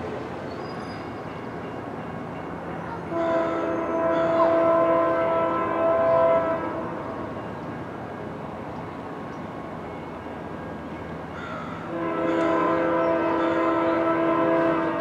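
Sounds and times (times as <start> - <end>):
train rumble: 0.0 - 15.0
locomotive air horn: 3.1 - 7.2, 11.8 - 15.0.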